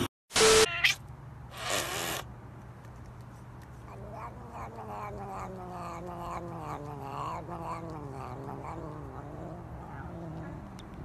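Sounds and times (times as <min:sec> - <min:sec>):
cat yowling: 0:00.5 - 0:01.0, 0:03.9 - 0:10.7.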